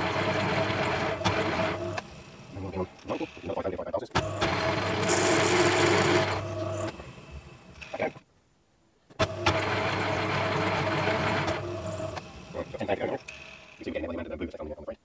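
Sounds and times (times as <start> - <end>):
lathe motor hum and gear whine: 0.0 - 3.3, 4.2 - 8.0, 9.2 - 13.9.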